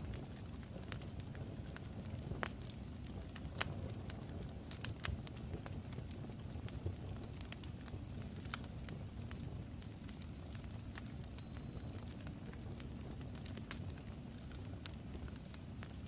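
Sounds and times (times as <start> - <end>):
fire crackling and popping: 0.0 - 16.0
faint high whistle: 7.6 - 13.1.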